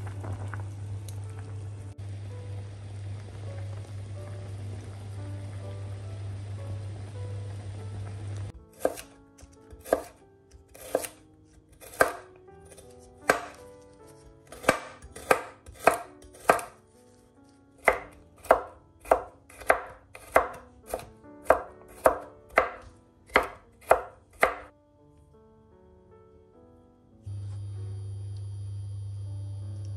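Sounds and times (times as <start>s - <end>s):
knife chopping on cutting board: 8.7s - 16.8s, 17.8s - 24.7s.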